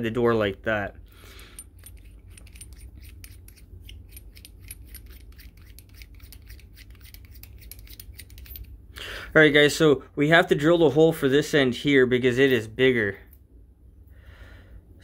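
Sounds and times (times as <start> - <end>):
metal threads screwing together: 1.4 - 8.8.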